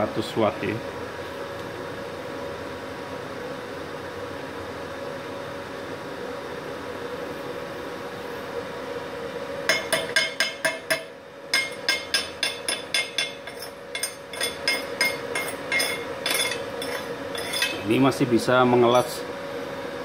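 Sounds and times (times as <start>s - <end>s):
welder humming: 9.6s - 20.0s
chipping hammer tapping metal: 9.7s - 17.8s.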